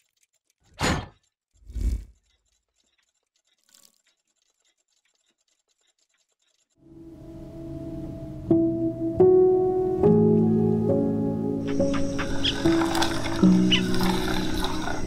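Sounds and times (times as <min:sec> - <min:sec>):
rapid mechanical ticking: 0:01.2 - 0:06.8.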